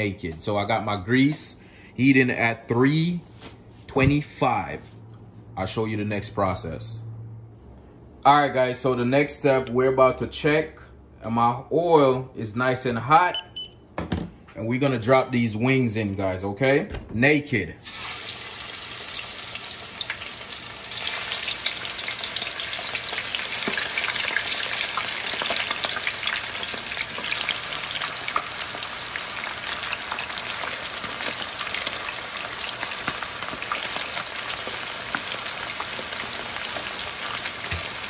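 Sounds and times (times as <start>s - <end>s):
chicken deep-frying in oil: 17.8s - 38.0s.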